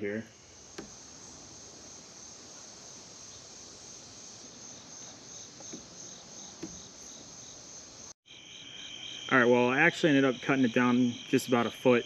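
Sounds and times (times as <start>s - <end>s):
crickets trilling: 0.0s - 12.0s
insect chirping in pulses: 0.0s - 12.0s
soft knock: 6.6s - 6.9s.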